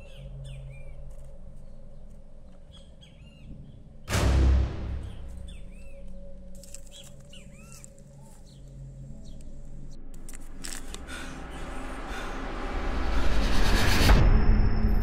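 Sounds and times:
small birds chirping: 0:00.0 - 0:04.1, 0:05.0 - 0:09.9
paper crinkling: 0:06.4 - 0:08.8, 0:10.2 - 0:11.1.

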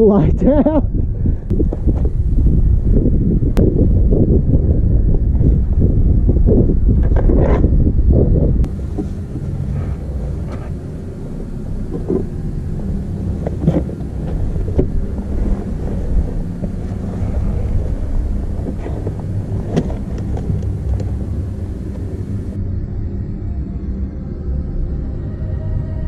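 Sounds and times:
wind buffeting microphone: 0:00.0 - 0:22.6
clicks and knocks on rock: 0:13.4 - 0:17.8, 0:18.4 - 0:22.1.

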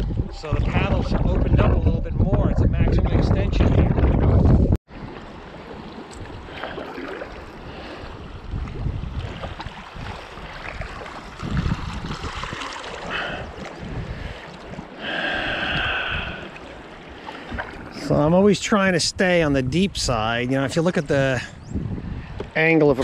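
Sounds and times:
wind buffeting microphone: 0:00.0 - 0:23.0
kayak paddle splashing in water: 0:04.9 - 0:18.1.

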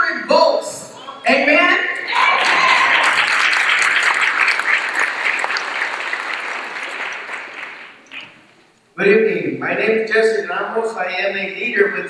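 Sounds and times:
audience applauding: 0:02.1 - 0:08.4.

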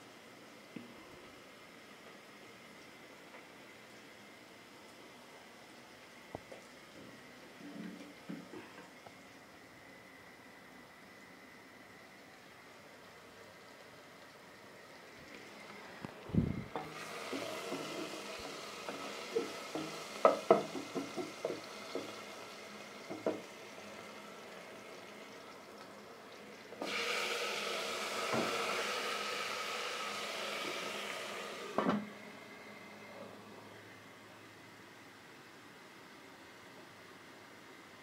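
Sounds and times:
onions sizzling in oil: 0:13.6 - 0:33.1.

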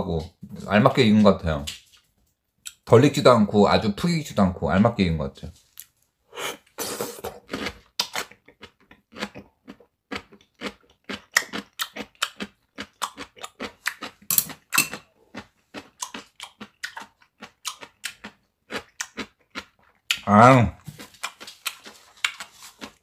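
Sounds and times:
crisp crunching and chewing: 0:07.2 - 0:23.0.

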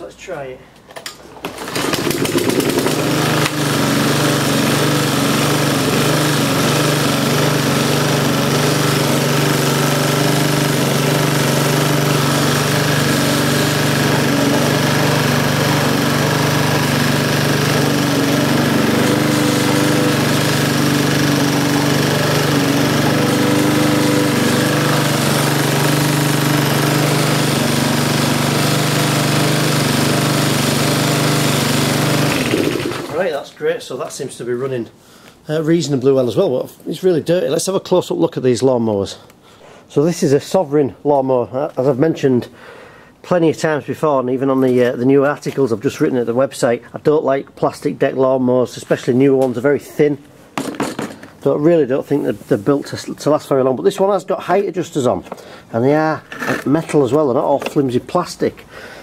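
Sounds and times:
lawnmower engine starting and running: 0:00.9 - 0:33.5, 0:48.0 - 0:59.0.

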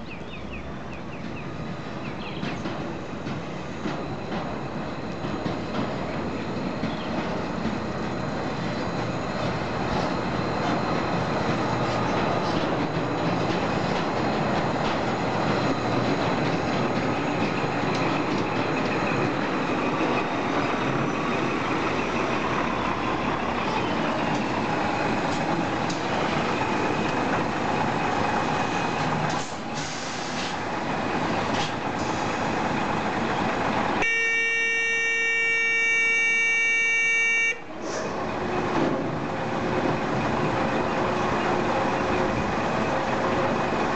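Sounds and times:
truck engine reversing: 0:01.2 - 0:34.0
electronic buzzer tone: 0:34.0 - 0:37.6.

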